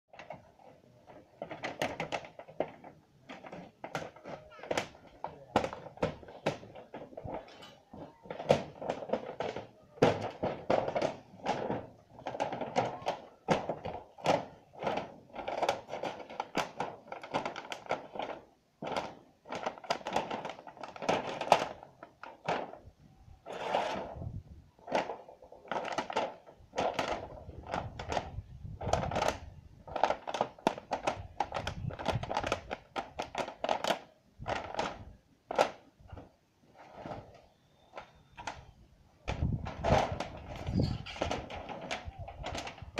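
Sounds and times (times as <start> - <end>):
metal roofing sheets knocking: 0.1 - 22.8, 39.3 - 42.9.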